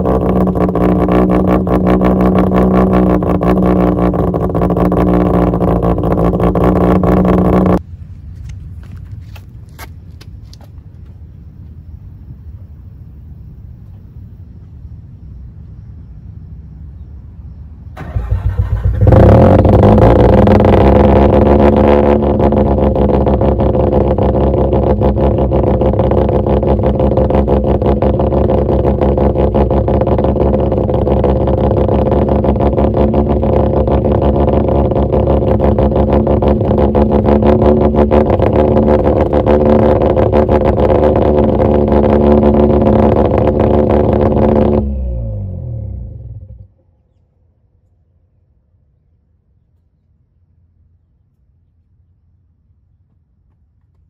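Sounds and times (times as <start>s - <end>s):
rotary engine starting and idling: 0.0s - 7.8s, 18.0s - 47.1s.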